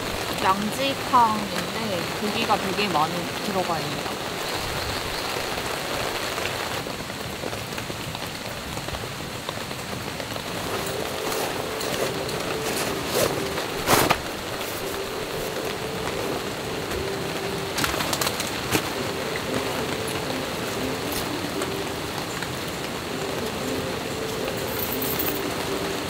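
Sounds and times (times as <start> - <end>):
rain pattering on a tarp: 0.0 - 26.0
camping gear knocks and rustles: 10.6 - 15.0, 17.8 - 19.0.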